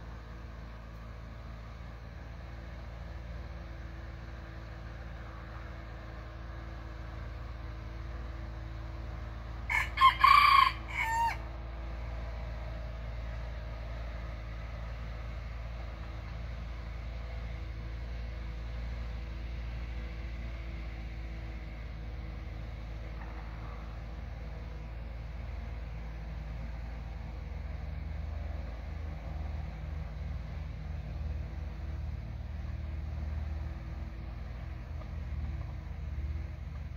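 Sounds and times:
rooster crowing: 9.7s - 11.4s.

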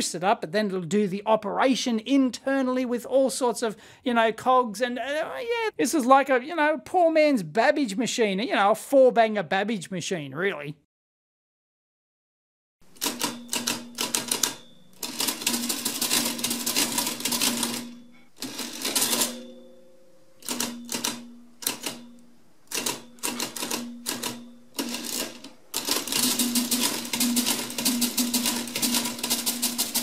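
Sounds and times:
calculator mechanism clattering: 13.0s - 19.5s, 20.4s - 22.1s, 22.7s - 30.0s.

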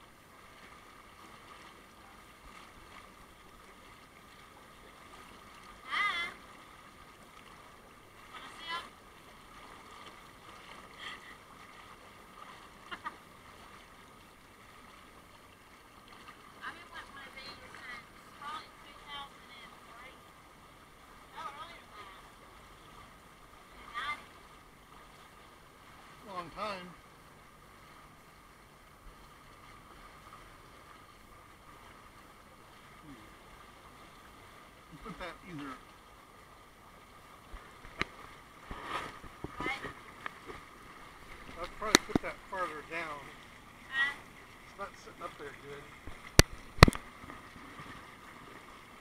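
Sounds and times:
hot tub jets bubbling: 0.0s - 49.0s
person laughing: 12.9s - 13.2s.

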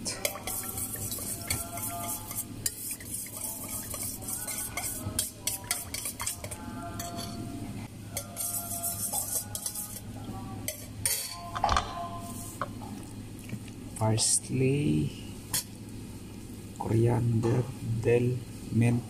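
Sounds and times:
spoons scraping metal bowls: 0.0s - 7.5s, 8.1s - 11.5s.

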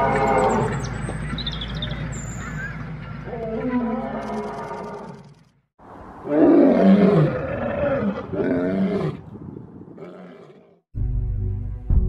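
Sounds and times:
big cat roaring: 6.2s - 9.2s, 10.0s - 10.8s.

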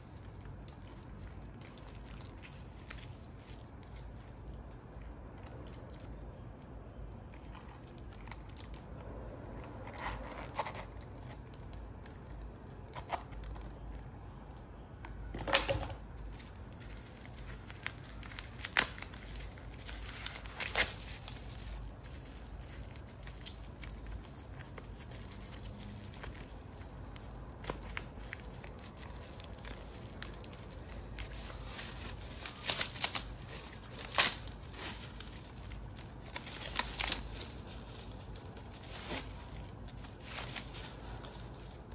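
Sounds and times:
paper crumpling and rustling: 16.2s - 41.9s.

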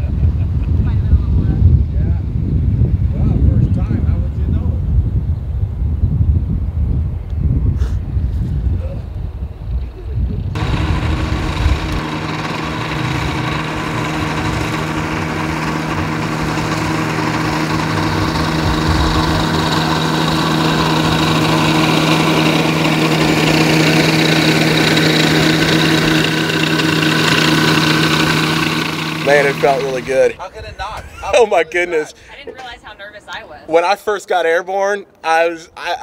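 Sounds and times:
wind on microphone: 0.0s - 26.3s
ultralight plane engine running: 10.5s - 30.4s.

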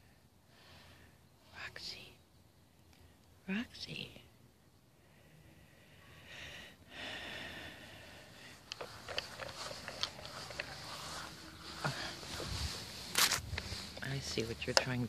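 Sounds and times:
dog sniffing in grass: 8.7s - 14.4s.

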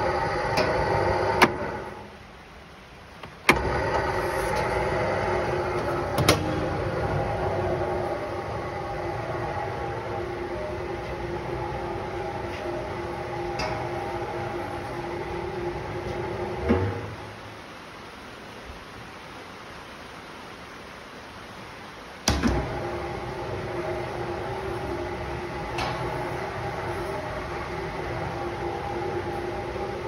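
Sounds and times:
mixer motor humming: 0.0s - 2.1s, 3.5s - 17.1s, 22.5s - 30.0s.

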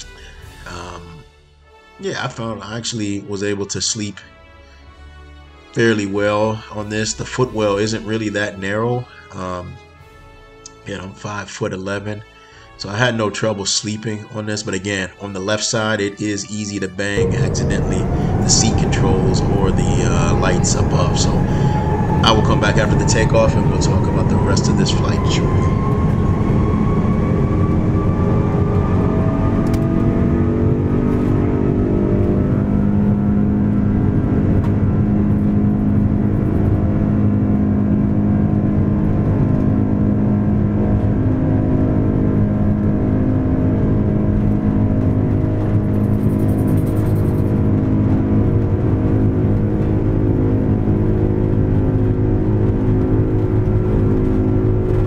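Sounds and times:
jet engines spooling up: 17.2s - 55.0s
low rumble: 17.2s - 55.0s.

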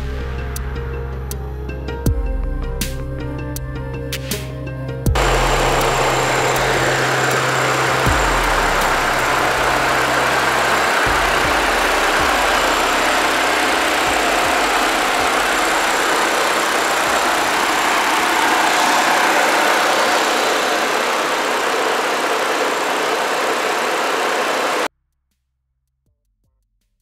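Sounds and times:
car engine idling: 5.1s - 24.9s.

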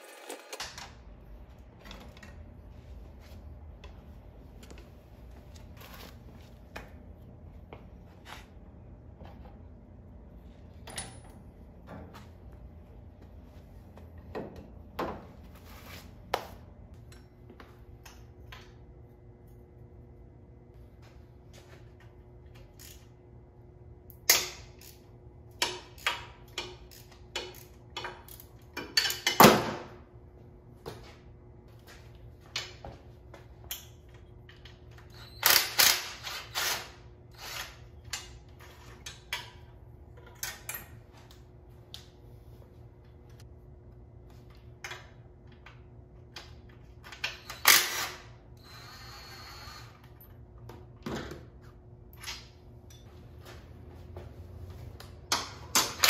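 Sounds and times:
power tool whir: 0.0s - 0.7s, 47.4s - 50.1s.

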